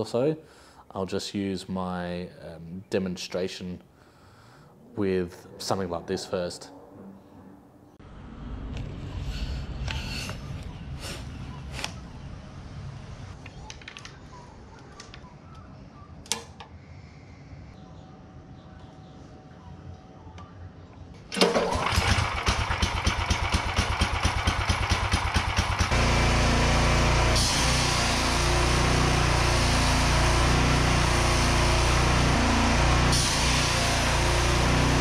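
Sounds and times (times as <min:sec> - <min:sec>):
pressure washer engine running: 0:21.4 - 0:35.0
high-pressure water jet hissing: 0:27.3 - 0:35.0.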